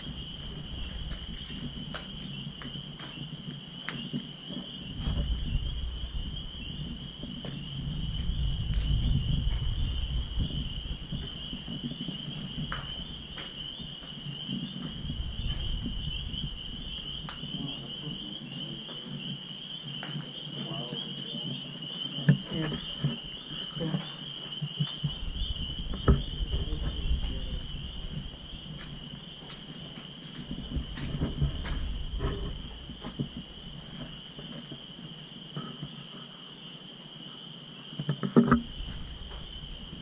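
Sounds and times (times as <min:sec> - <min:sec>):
footsteps on concrete: 0:00.0 - 0:03.4, 0:07.2 - 0:16.1, 0:22.2 - 0:34.9
high-pitched animal chorus: 0:00.0 - 0:40.0
low rumble: 0:04.8 - 0:11.8, 0:14.9 - 0:17.8, 0:25.1 - 0:29.1, 0:38.6 - 0:40.0.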